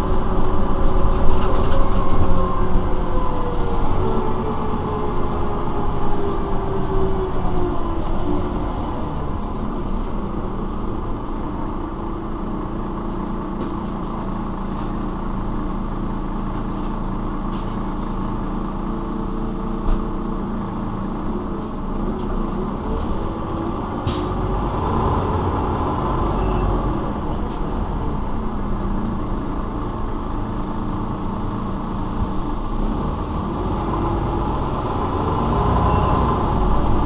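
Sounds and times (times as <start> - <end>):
bus engine drone: 0.0 - 37.0
high-pitched beep: 14.2 - 16.8, 17.7 - 21.1.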